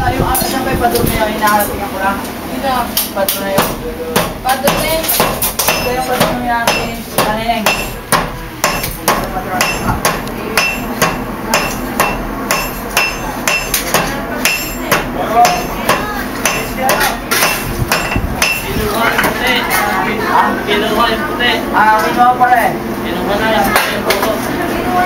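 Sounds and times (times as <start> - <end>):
hammers striking steel on anvil: 3.6 - 18.7.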